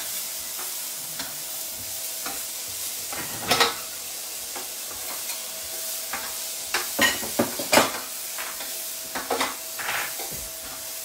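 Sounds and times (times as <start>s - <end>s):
onions sizzling in a pan: 0.0s - 11.0s
spoon scraping a pan: 6.1s - 10.4s.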